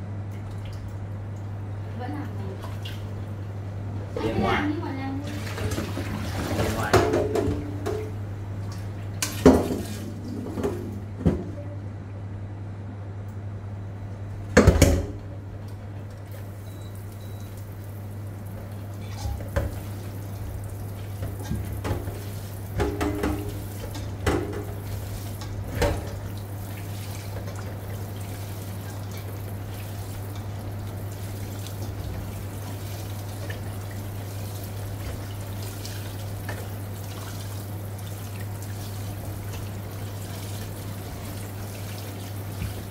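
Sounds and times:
pot clanking against steel sink: 5.6 - 8.2, 21.2 - 26.4
hands kneading in water: 15.6 - 42.9
tap water running into pot: 16.4 - 42.9.

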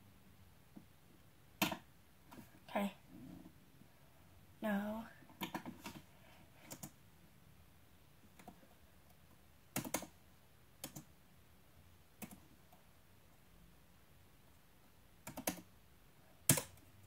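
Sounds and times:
computer keyboard key presses: 5.4 - 6.0, 9.7 - 10.1, 15.2 - 15.7, 16.4 - 16.9.

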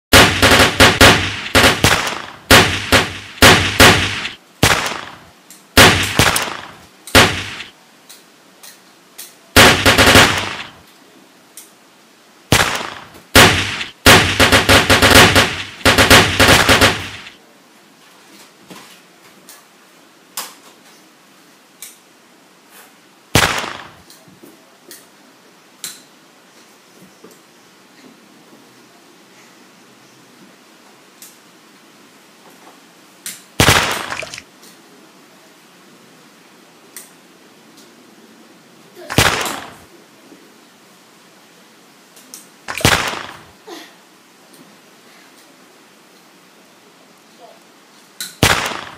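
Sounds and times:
toy gun shots: 0.1 - 5.2, 5.8 - 7.7, 9.6 - 10.8, 12.5 - 17.4, 23.4 - 24.0, 33.6 - 34.4, 39.1 - 39.8, 42.7 - 43.5, 48.4 - 48.9.

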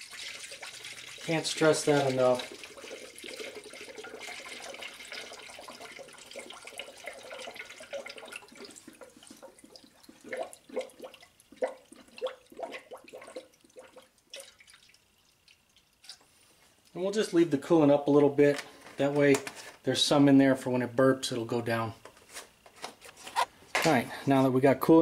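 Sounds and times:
liquid gurgling and glugging: 0.0 - 16.2
liquid pouring into a funnel: 0.0 - 16.3.

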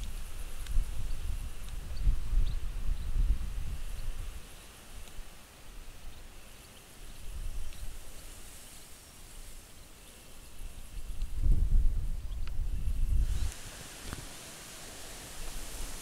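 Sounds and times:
wind rumbling on microphone: 0.0 - 6.2, 7.0 - 8.6, 10.5 - 16.0
faint insect chirping: 0.0 - 11.6, 12.2 - 16.0.

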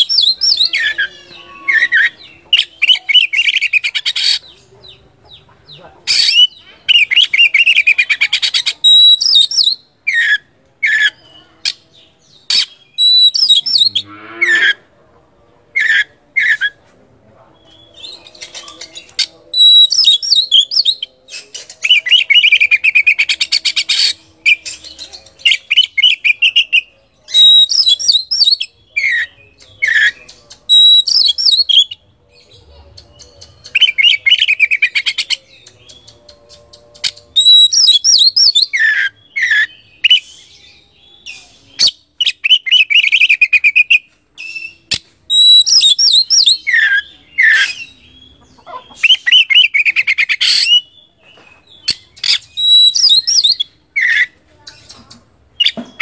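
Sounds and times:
bird singing trilled phrases: 6.1 - 14.8, 32.9 - 55.0.

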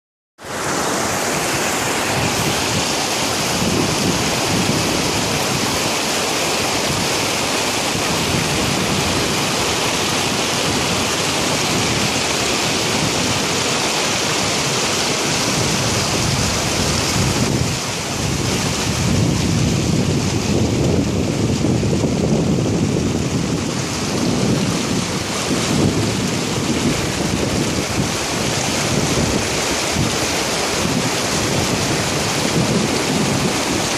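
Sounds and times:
water rushing over rocks: 0.4 - 33.9
wind buffeting microphone: 1.2 - 33.9.

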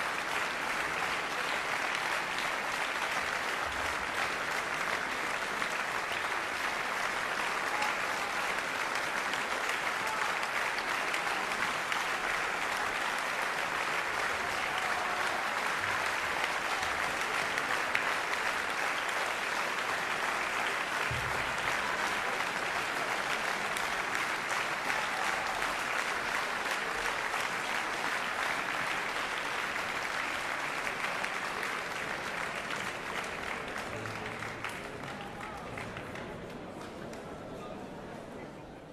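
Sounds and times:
audience applauding: 0.0 - 37.3.

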